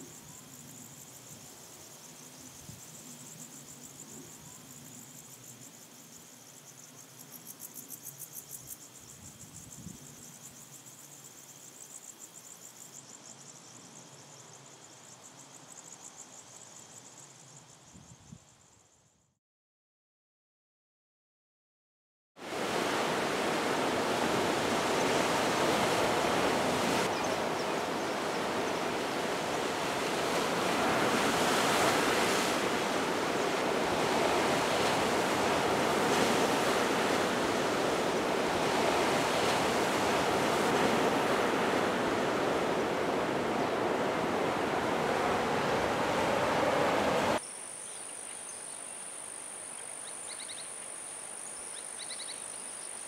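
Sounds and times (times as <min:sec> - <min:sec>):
high insect drone: 0:00.0 - 0:19.2, 0:22.4 - 0:53.0
ocean surf breaking: 0:22.5 - 0:47.4
faint chirps: 0:47.4 - 0:53.0.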